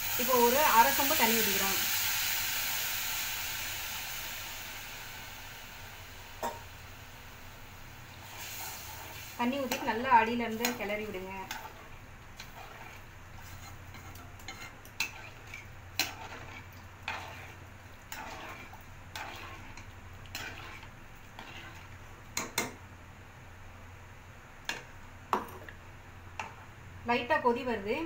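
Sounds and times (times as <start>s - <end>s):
metal ladle scraping pan: 12.4s - 21.9s.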